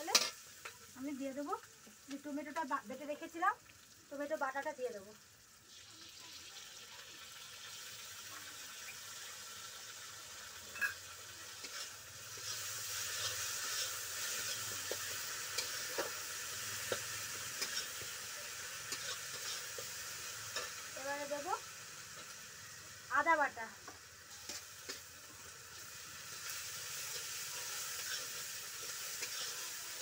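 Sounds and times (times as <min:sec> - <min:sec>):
onions sizzling in oil: 0:00.0 - 0:30.0
metal spatula scraping pan: 0:11.6 - 0:16.2, 0:16.8 - 0:18.1, 0:18.8 - 0:20.8, 0:28.0 - 0:29.7.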